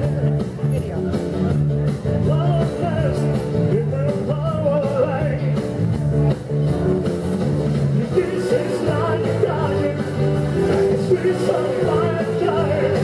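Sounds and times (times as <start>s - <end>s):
amplified backing music: 0.0s - 13.0s
man singing into microphone: 2.2s - 5.6s, 8.0s - 13.0s.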